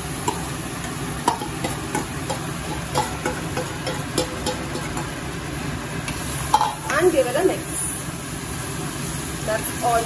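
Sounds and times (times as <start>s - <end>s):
food sizzling in pan: 0.0s - 10.0s
spoon knocking against pan: 0.2s - 5.2s.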